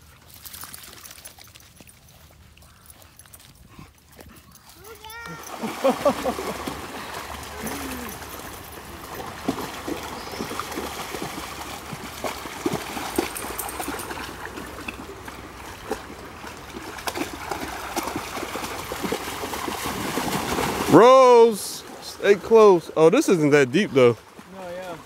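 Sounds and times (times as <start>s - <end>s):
creek water running: 0.0s - 25.0s
dogs splashing in water: 0.0s - 25.0s.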